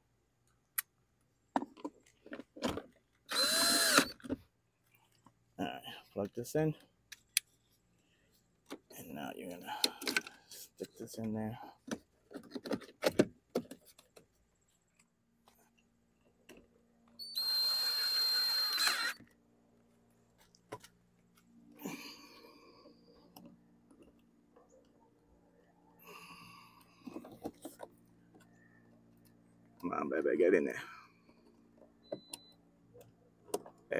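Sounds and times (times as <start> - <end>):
cordless drill driving screw: 3.3 - 4.2, 17.2 - 19.2.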